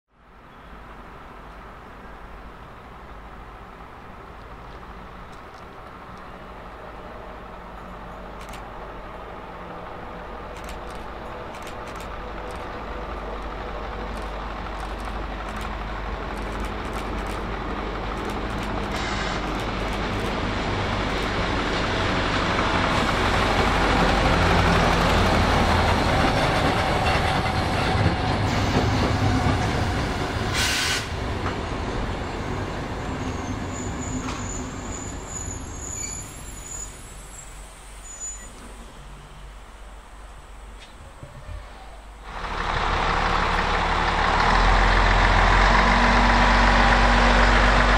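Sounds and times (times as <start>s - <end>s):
diesel engine of rail tractor: 1.1s - 47.9s
train wheels rolling on rails: 3.2s - 47.9s
short hiss of air: 18.9s - 19.7s, 30.5s - 31.2s
faint high squeal: 33.1s - 39.4s.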